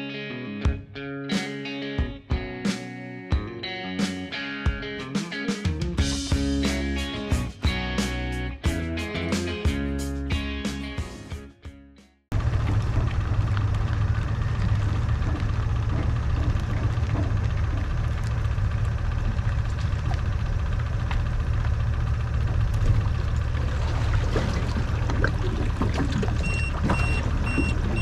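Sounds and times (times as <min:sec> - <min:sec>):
engine low rumble: 0:12.3 - 0:28.0.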